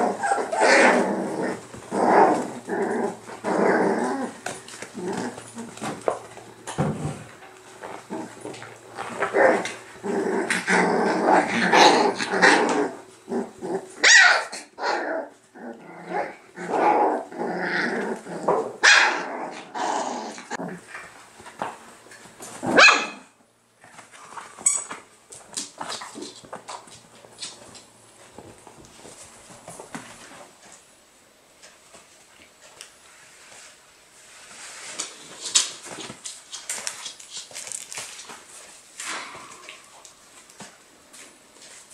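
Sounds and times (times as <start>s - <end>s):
puppies growling and yapping: 0.0s - 6.4s, 7.8s - 21.1s
puppy yelps: 14.0s - 15.0s, 22.8s - 23.3s.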